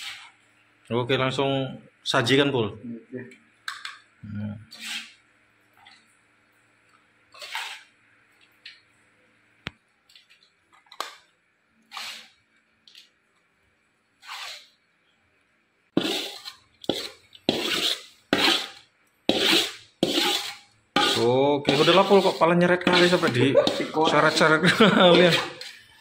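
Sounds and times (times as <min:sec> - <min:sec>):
spatula scraping pan: 0:00.0 - 0:00.4, 0:04.7 - 0:05.2, 0:07.3 - 0:08.0, 0:11.9 - 0:12.4, 0:14.2 - 0:14.8, 0:15.9 - 0:26.0.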